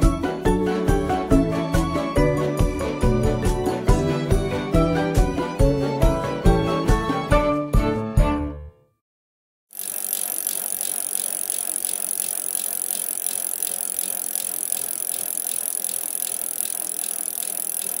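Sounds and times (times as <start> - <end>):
quick mechanical clicking: 9.8 - 18.0.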